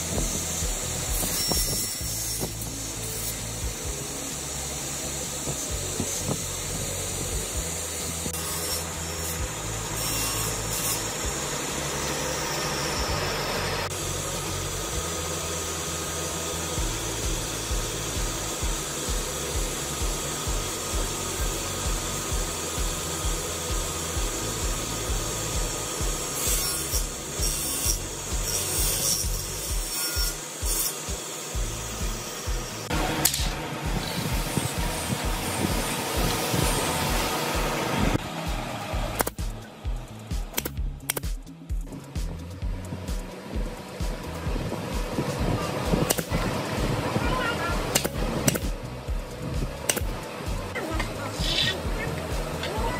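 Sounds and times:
table saw whining: 0:00.0 - 0:39.8.

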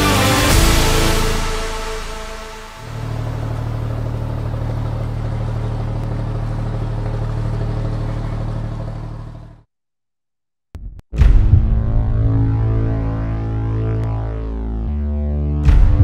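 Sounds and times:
low rumbling drone with hiss: 0:00.6 - 0:09.6.

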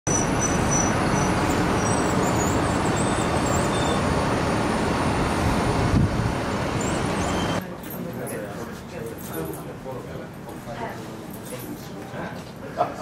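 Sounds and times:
airport apron roar: 0:00.1 - 0:07.6.

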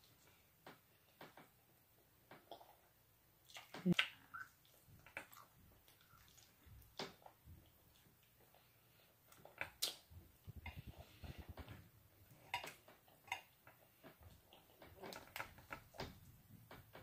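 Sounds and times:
mouth smacks and clicks: 0:02.3 - 0:08.7, 0:09.3 - 0:11.6
person chewing: 0:02.4 - 0:15.8.

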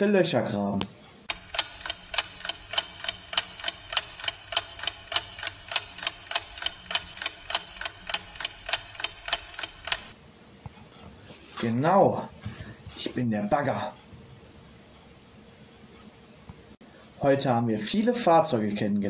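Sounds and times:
clock ticking: 0:01.3 - 0:10.2.

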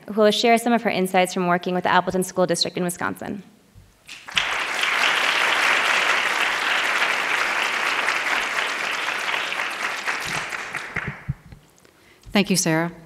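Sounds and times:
audience applauding: 0:04.1 - 0:11.4.

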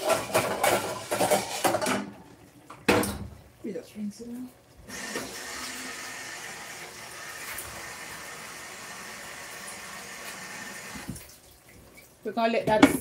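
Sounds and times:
water running from tap: 0:04.3 - 0:12.1.

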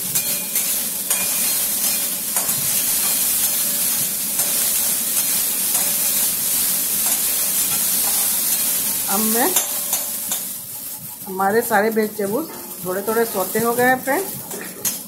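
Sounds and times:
vegetables sizzling in hot oil: 0:00.0 - 0:15.0
spatula clinking on pan: 0:00.2 - 0:03.2, 0:04.4 - 0:06.2, 0:09.5 - 0:10.5.

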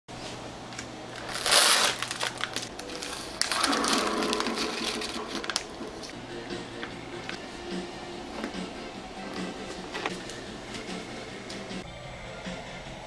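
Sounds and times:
plastic package crinkling: 0:01.2 - 0:06.1.

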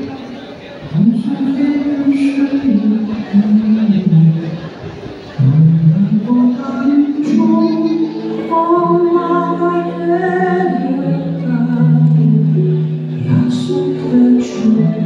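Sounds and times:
musical accompaniment: 0:05.4 - 0:15.0
women singing into microphones: 0:06.0 - 0:15.0.

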